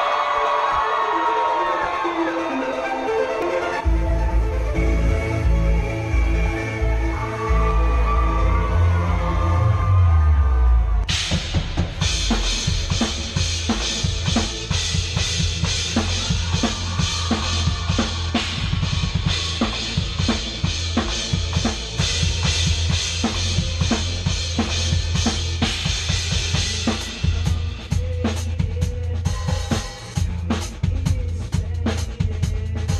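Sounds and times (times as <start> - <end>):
low bass: 3.8 - 32.9
fast drum kit playing: 11.1 - 32.9.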